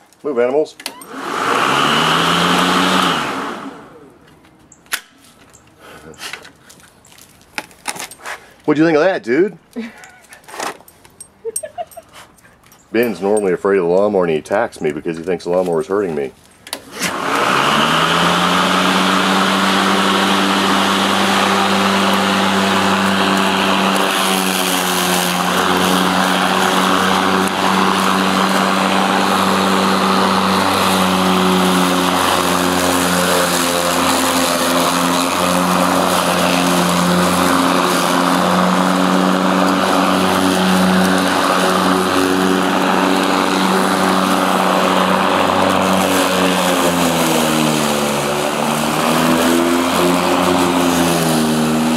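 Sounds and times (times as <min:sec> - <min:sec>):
electric lawn mower humming: 0:00.8 - 0:04.6, 0:16.7 - 0:51.9.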